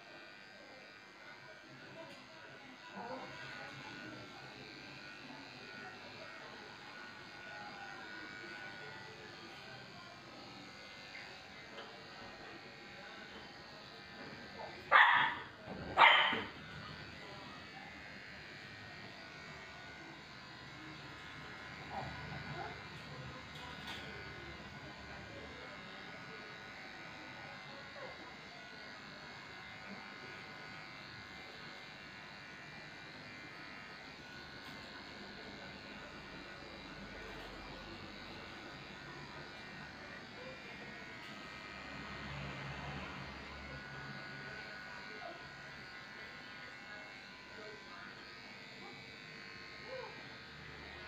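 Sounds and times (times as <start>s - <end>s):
electric clippers running: 0.0s - 51.0s
dog barking: 14.9s - 15.4s, 16.0s - 16.5s.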